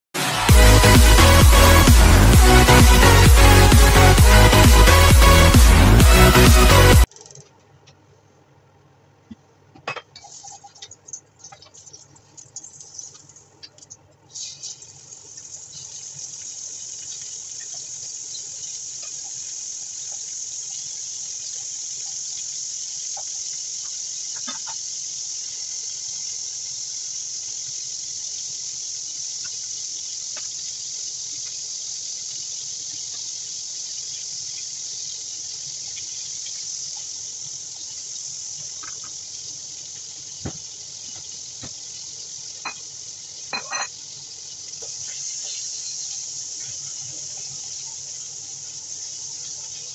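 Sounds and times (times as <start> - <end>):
scallops sizzling in oil: 14.3 - 49.9
kitchen utensils knocking: 43.6 - 43.9.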